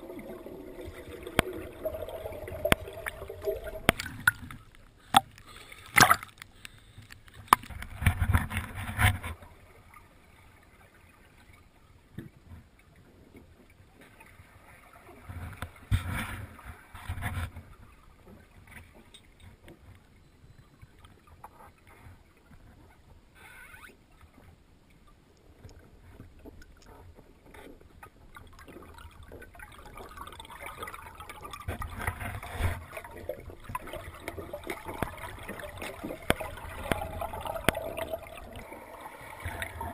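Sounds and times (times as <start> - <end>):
water bubbling: 0.0 - 6.5, 28.1 - 39.9
water sloshing and splashing: 0.0 - 20.2, 20.8 - 39.9.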